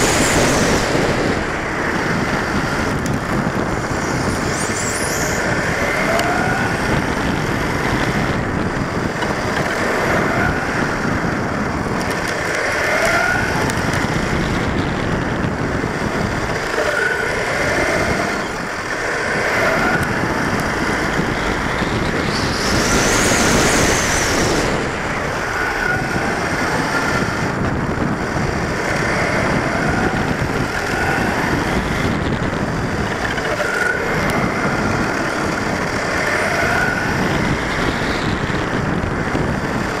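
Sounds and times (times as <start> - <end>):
electric motor and gears whining: 0.0 - 40.0
tyre and wind noise: 0.0 - 40.0.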